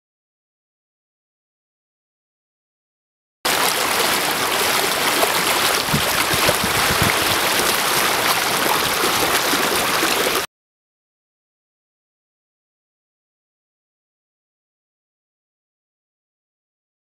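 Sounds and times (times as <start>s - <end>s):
floodwater rushing: 3.5s - 10.5s
dull low thumps: 5.9s - 7.5s.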